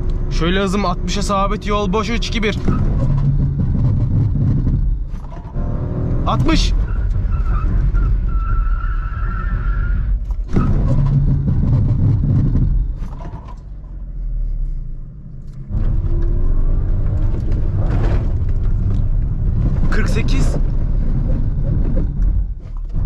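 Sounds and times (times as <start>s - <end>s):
locked tyres squealing: 0.0s - 13.6s
low rumble of car and road: 0.0s - 23.0s.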